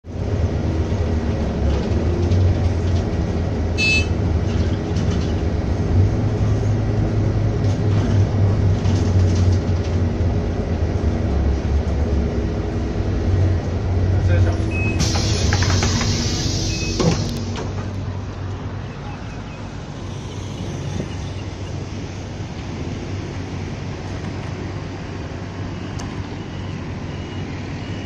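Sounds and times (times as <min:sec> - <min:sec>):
bus engine and road rumble: 0:00.0 - 0:28.0.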